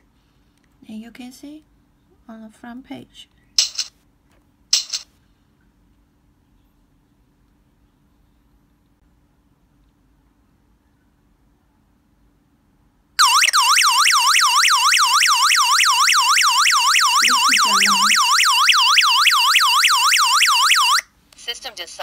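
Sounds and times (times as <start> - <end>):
alarm siren wailing: 13.2 - 21.0.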